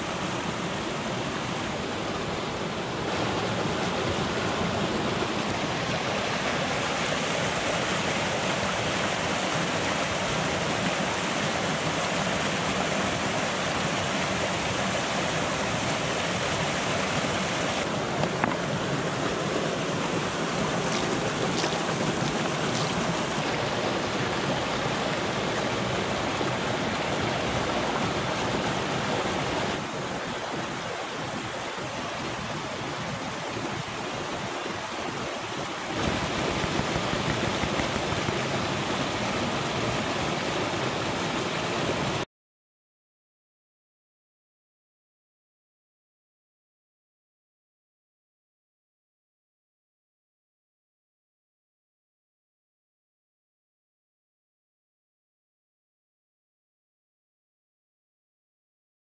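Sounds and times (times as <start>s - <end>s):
stream running over stones: 0.0s - 42.2s.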